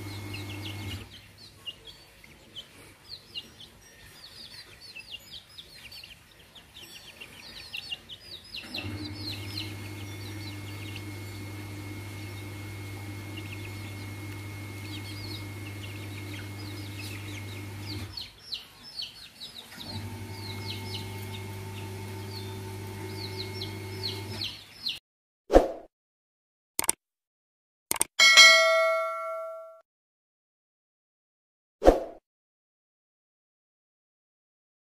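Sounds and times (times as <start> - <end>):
low mechanical hum: 0.0 - 1.1, 8.6 - 18.2, 19.8 - 24.4
chicks peeping: 0.0 - 25.0.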